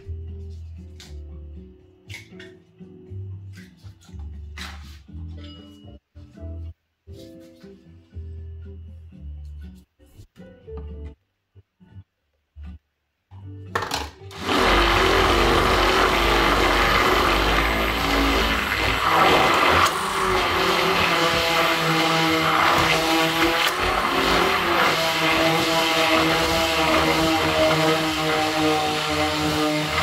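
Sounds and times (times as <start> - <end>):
immersion blender motor whirring: 14.3 - 30.0.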